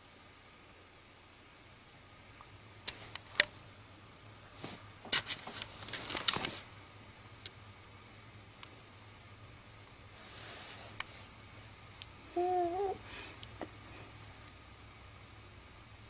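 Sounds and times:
soft clicks and rustles: 2.4 - 3.6, 4.5 - 6.7.

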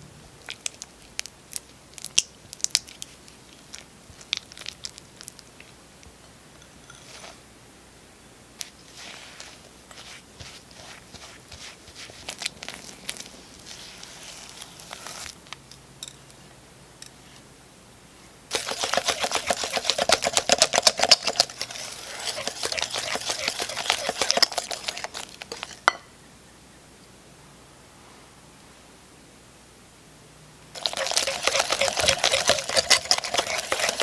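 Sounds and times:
spatula scraping butter: 6.8 - 7.4, 18.5 - 25.8, 30.8 - 34.0
whisk clicking against glass bowl: 18.5 - 25.7, 30.8 - 34.0.

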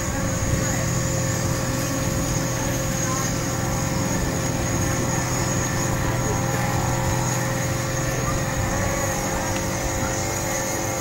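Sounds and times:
steady mechanical hum: 0.0 - 11.0.

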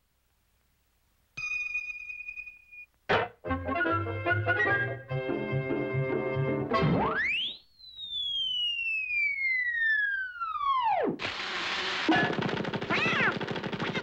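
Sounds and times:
cartoon slide whistle: 7.0 - 11.1
fast rattling clatter: 11.3 - 14.0
cartoon duck squawking voice: 12.9 - 13.4.

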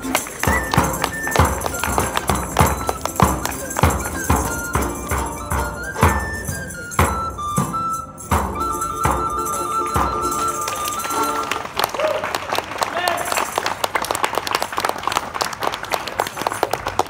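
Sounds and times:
frame drum beating: 0.0 - 11.4
plucked lute: 0.0 - 11.7
recorder melody: 0.0 - 11.7.

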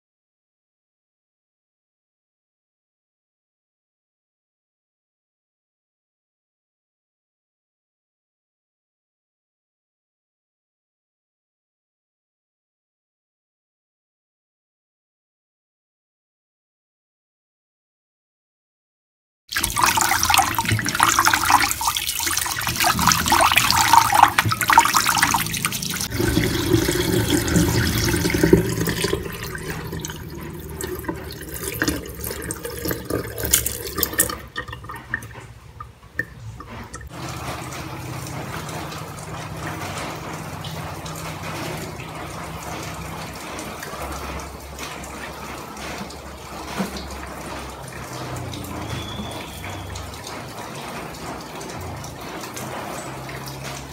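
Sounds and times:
rice swishing in water: 19.5 - 34.3
water poured into a sink: 19.5 - 53.9.

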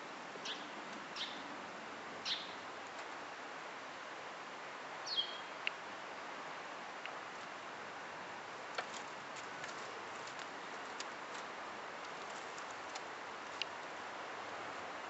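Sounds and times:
steady outdoor hiss: 0.0 - 15.0.

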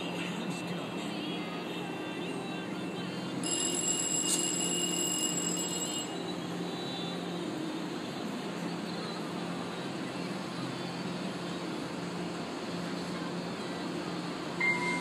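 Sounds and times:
high ringing tone: 3.4 - 7.3, 14.6 - 15.0.

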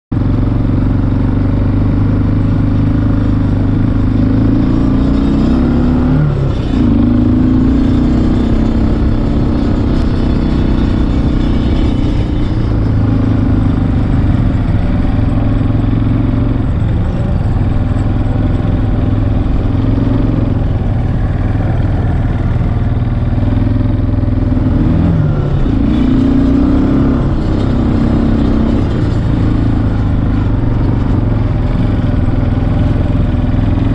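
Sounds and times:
atv engine running: 0.1 - 33.9.

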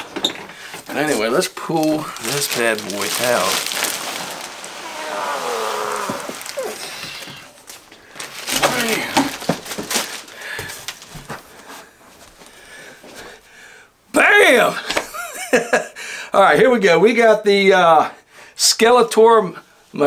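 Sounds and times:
plastic bag crinkling: 0.7 - 11.3
cardboard rubbing: 2.2 - 7.7.

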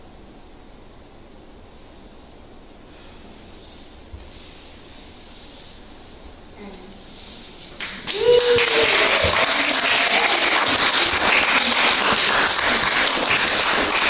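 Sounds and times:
audience applauding: 7.8 - 14.0.

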